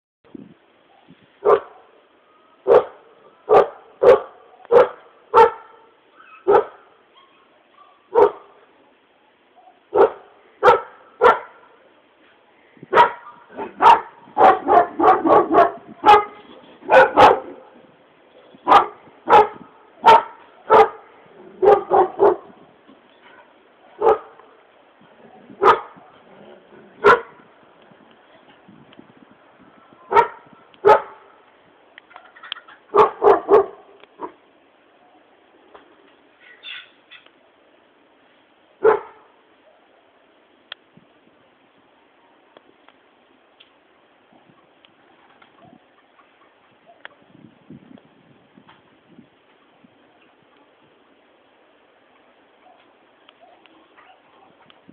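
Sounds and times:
dogs barking: 1.4 - 2.0, 2.6 - 8.6, 9.6 - 11.8, 12.9 - 17.8, 18.6 - 22.6, 23.2 - 24.5, 25.6 - 27.4, 30.1 - 31.3, 32.9 - 34.4, 38.8 - 40.2, 52.6 - 54.7.

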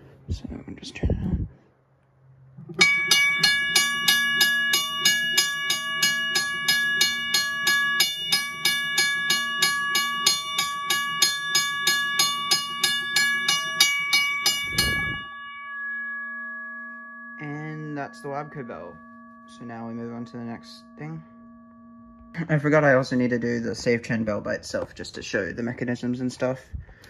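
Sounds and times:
railway crossing bell ringing: 2.8 - 24.0.

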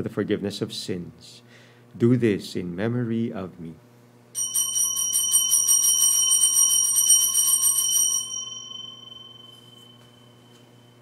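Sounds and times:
altar bell ringing: 4.4 - 11.0.

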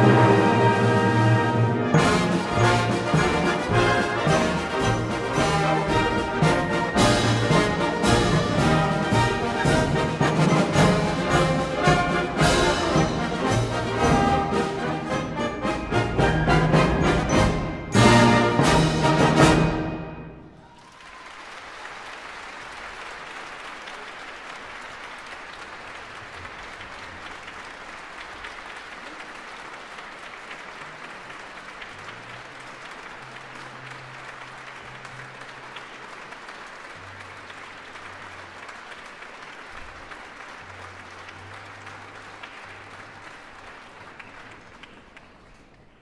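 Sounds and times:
audience applauding: 20.5 - 46.0.

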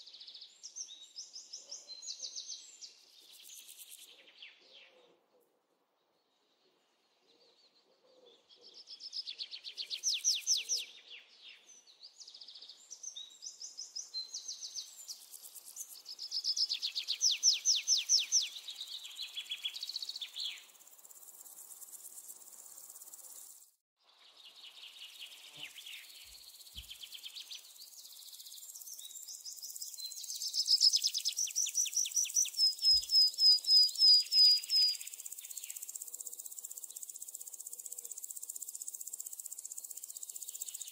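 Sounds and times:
insects chirping trills: 3.2 - 4.1, 14.3 - 23.8, 25.2 - 40.9.

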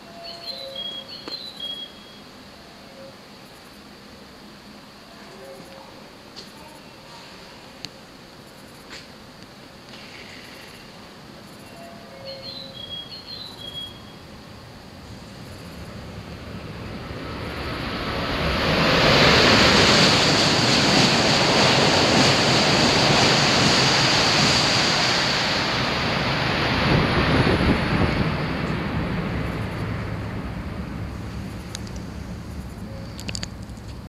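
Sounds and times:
high-speed train passing: 0.0 - 34.0.

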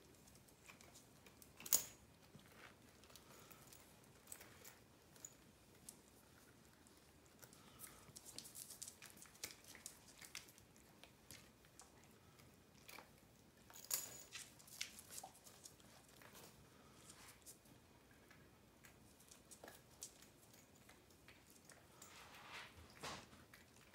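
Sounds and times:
puppies mouthing wet clicks: 8.6 - 13.4.

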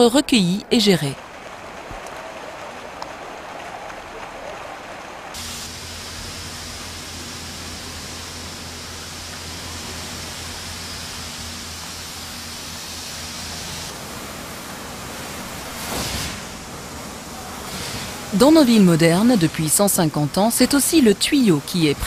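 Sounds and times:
running water rushing: 0.8 - 22.0
low hum: 5.4 - 21.7.

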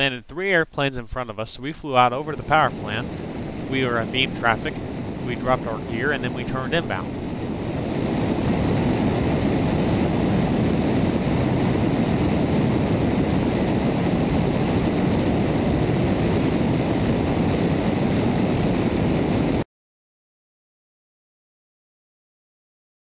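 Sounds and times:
aircraft engine and propeller drone: 1.9 - 19.6
airstream rushing: 2.1 - 12.0.

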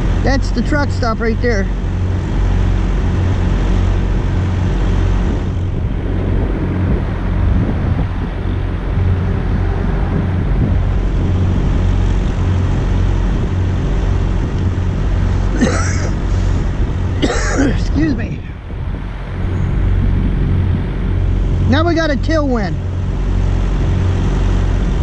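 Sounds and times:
traffic noise: 0.0 - 25.0
vehicle engine humming: 0.0 - 25.0.

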